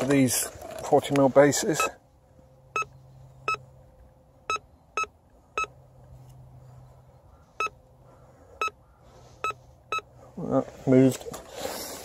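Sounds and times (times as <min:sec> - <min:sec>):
metal detector beeps: 0:01.7 - 0:02.0, 0:02.7 - 0:03.6, 0:09.4 - 0:10.1.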